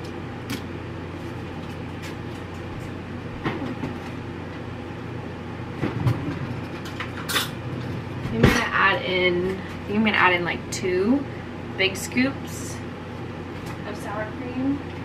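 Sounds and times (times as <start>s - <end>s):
low appliance hum: 0.0s - 15.0s.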